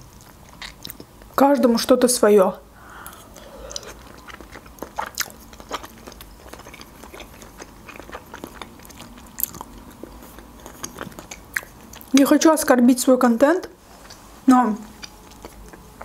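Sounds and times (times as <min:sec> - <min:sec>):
person chewing wet mouth smacks: 0:00.1 - 0:01.3, 0:03.0 - 0:12.2, 0:14.9 - 0:16.0.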